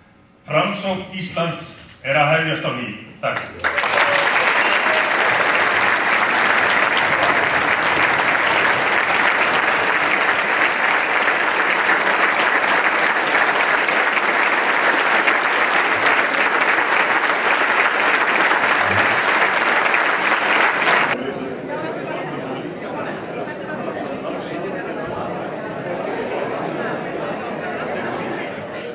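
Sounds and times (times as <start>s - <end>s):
audience applauding: 3.4s - 21.2s.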